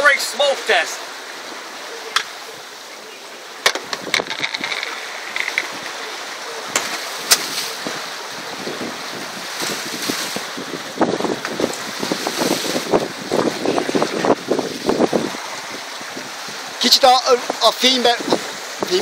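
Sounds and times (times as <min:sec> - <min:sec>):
sea rushing past a yacht: 0:00.0 - 0:19.0
sharp clicks and knocks: 0:03.6 - 0:05.7
wind rushing: 0:07.4 - 0:19.0.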